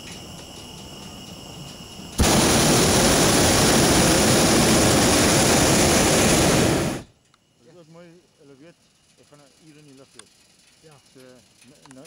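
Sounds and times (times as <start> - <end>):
propane burner roaring: 2.2 - 7.1.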